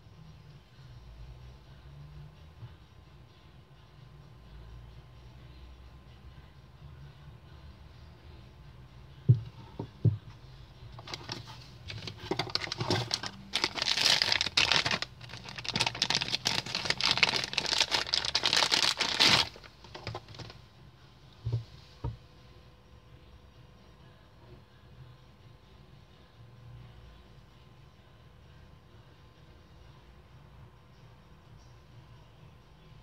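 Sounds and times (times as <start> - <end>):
plastic bag crinkling: 11.0 - 20.5.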